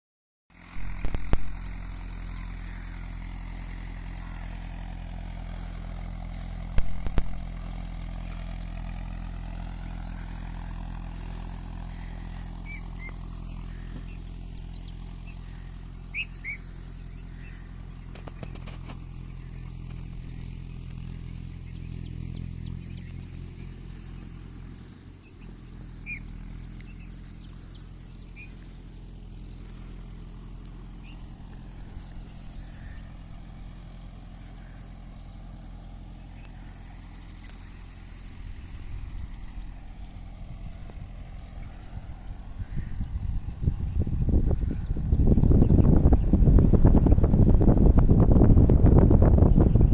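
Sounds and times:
vehicle engine drone: 0.5 - 49.9
bird chirps: 1.9 - 38.5.

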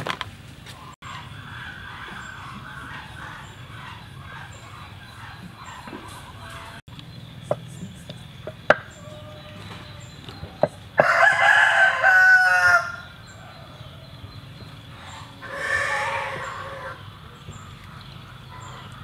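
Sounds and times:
rooster crowing: 8.9 - 10.1, 11.0 - 14.2, 15.4 - 17.0.

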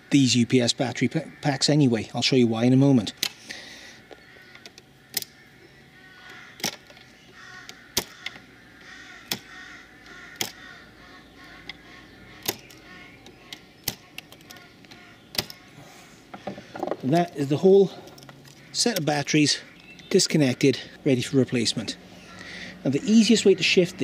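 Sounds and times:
sharp metallic clicks: 3.1 - 3.5, 4.1 - 5.4, 6.2 - 10.7, 11.4 - 15.7, 16.9 - 20.4.

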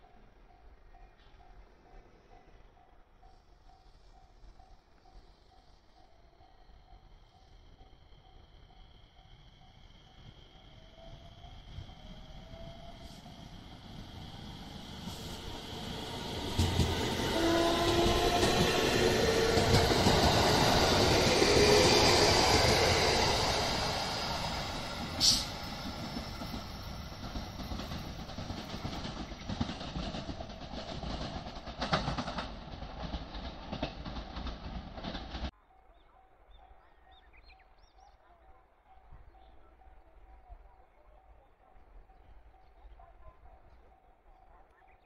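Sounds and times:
train wheels rumbling on rails: 10.0 - 35.5.

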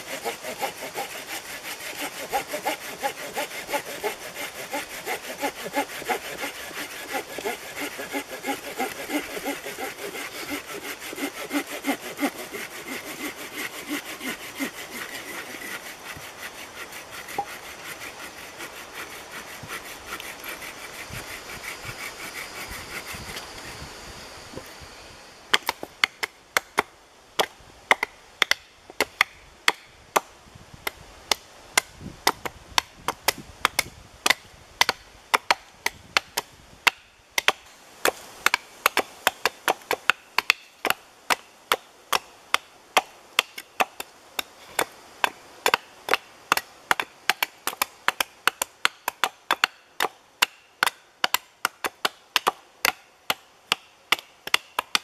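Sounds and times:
hatchets chopping wood: 0.1 - 16.3, 31.8 - 55.0.

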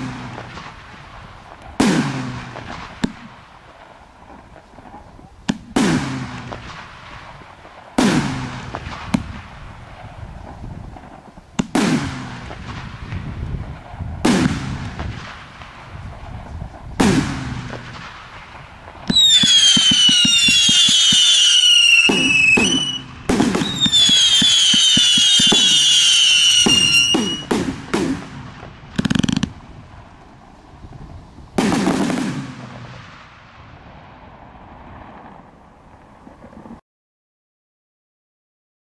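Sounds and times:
firework bangs: 0.0 - 36.8
shrill firework whistles: 19.1 - 27.5.

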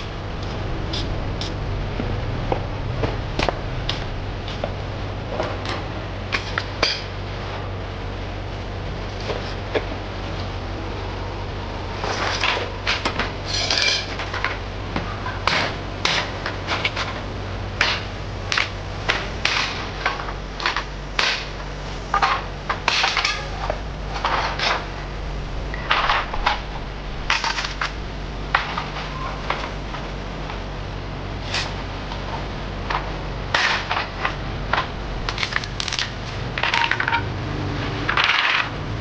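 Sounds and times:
low hum: 0.0 - 39.0
hard objects clattering: 17.8 - 30.0, 32.9 - 37.3.

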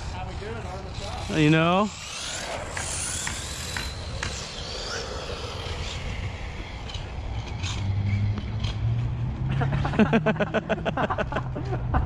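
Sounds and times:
toy car motor whine: 0.0 - 8.9.

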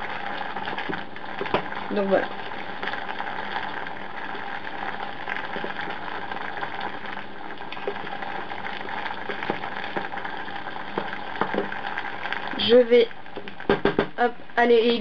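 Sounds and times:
water boiling in a pot: 0.0 - 15.0
wooden spoon knocking pot: 0.8 - 1.8, 9.2 - 10.2, 10.8 - 11.8, 13.3 - 14.2.

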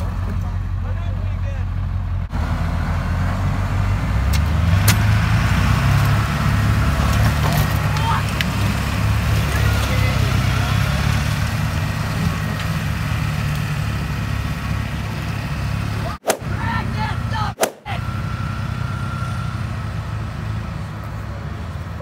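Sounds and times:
diesel truck engines under load: 0.0 - 22.0
sudden sharp cracks: 17.6 - 17.9.

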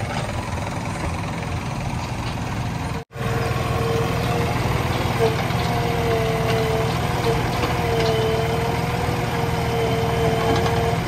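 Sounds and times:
diesel engine rumbling: 0.0 - 11.0
hydraulic whine: 2.6 - 11.0.

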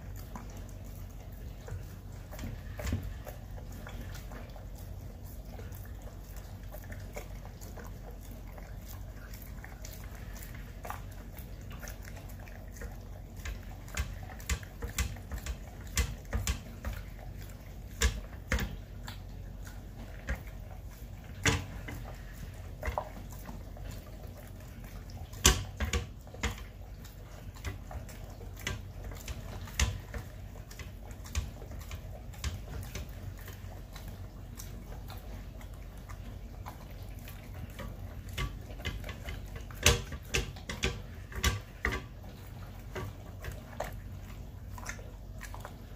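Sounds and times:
dog lapping from bowl: 0.0 - 45.9
mouth knocking metal bowl: 37.8 - 42.2.

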